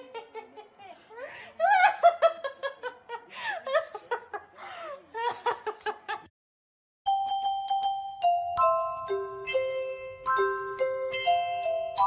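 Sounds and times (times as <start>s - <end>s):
mallet percussion music: 7.1s - 12.0s.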